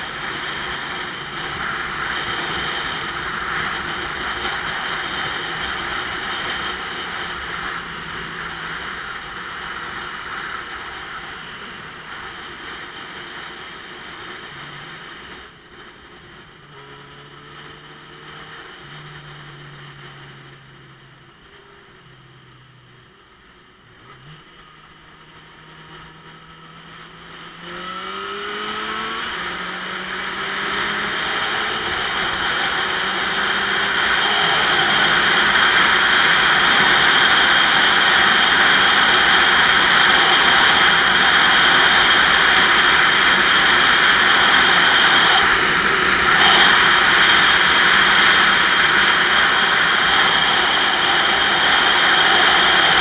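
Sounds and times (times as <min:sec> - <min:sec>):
motorcycle engine: 0:00.0 - 0:53.0
wind rushing over camera: 0:26.8 - 0:53.0.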